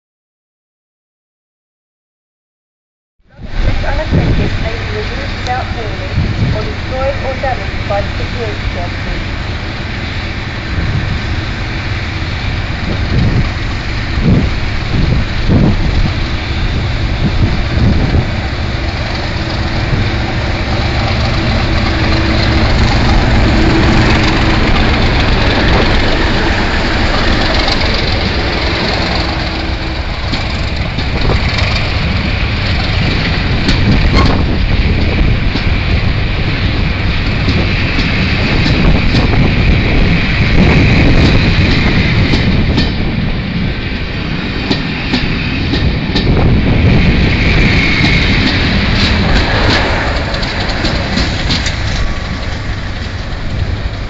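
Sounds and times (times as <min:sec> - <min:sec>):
diesel locomotive engine: 0:03.3 - 0:54.0
train wheels clicking over rail joints: 0:11.4 - 0:54.0.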